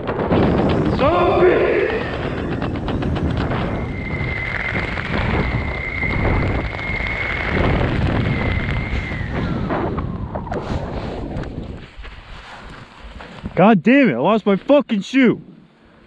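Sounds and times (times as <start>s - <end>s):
wind buffeting microphone: 0.0s - 13.6s
steady high whistle: 3.4s - 10.8s.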